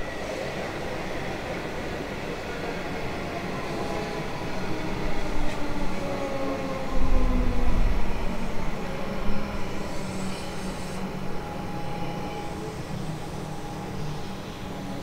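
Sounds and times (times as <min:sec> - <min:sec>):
train wheels rumbling on track: 0:00.0 - 0:15.0
electric train motor whine: 0:04.9 - 0:15.0.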